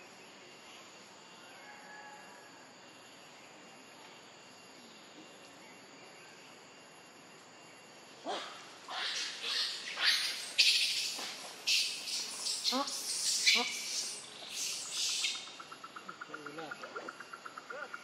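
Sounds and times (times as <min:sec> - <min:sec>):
animal cry: 0:08.2 - 0:10.5.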